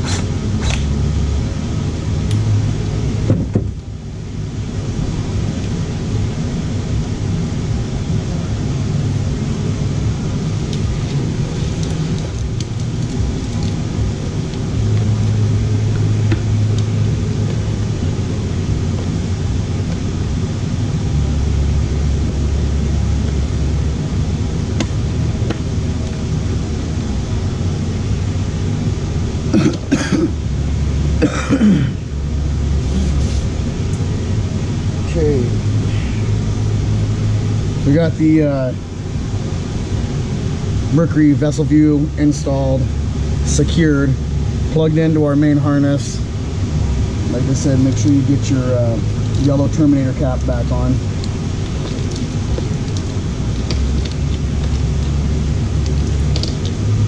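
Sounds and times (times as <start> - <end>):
low hum: 0.0 - 57.0
man clearing throat: 29.5 - 30.4, 31.2 - 32.0.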